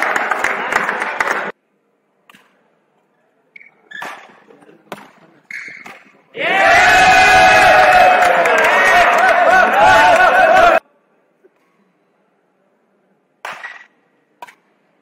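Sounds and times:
shoe squeaks on court floor: 5.5 - 6.2.

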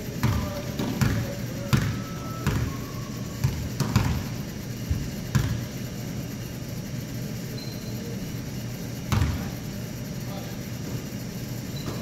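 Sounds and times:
basketball bouncing on hardwood: 0.2 - 2.7, 3.4 - 4.3, 4.9 - 5.6.

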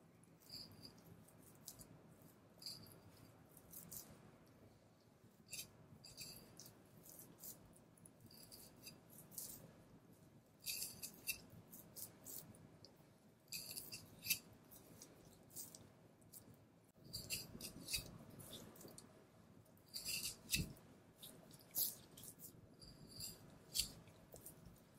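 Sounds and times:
knife slicing meat: 17.1 - 18.6.

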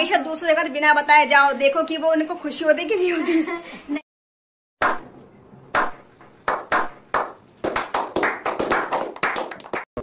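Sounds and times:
people clapping: 5.7 - 10.0.

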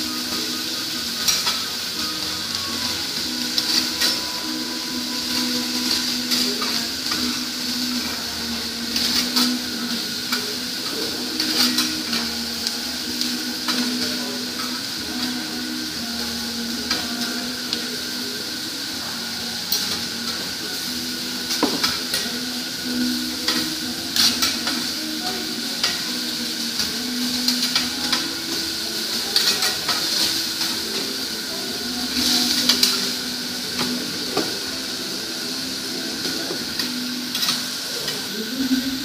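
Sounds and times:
vegetables and meat sizzling: 0.0 - 39.0
metal spatula scraping griddle: 11.2 - 12.5.

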